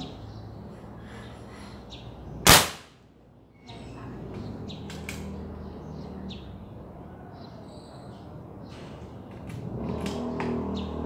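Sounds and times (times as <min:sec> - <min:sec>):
air rifle shot: 0:02.5 - 0:02.9.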